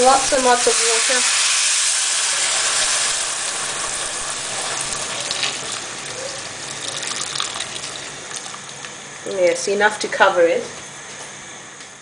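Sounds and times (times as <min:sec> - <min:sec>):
water pouring into a pot: 0:00.1 - 0:08.8.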